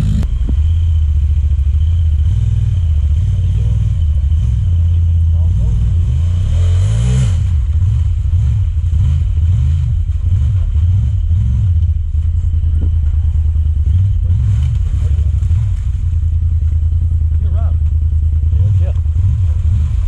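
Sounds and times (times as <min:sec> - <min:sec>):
engine revving under load: 0:00.0 - 0:00.8, 0:01.5 - 0:12.1, 0:12.7 - 0:16.2, 0:17.2 - 0:20.0.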